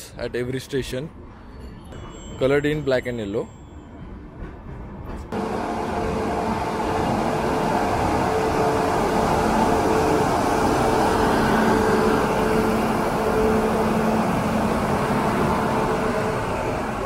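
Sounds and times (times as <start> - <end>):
train wheels rumbling: 4.0 - 17.0
locomotive motor hum: 5.3 - 17.0.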